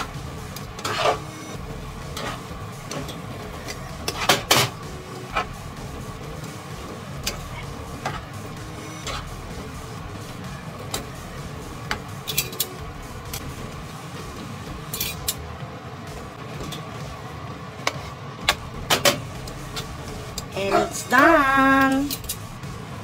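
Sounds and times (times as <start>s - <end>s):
metal tongs clinking on a pan: 14.9s - 15.4s, 21.8s - 22.4s.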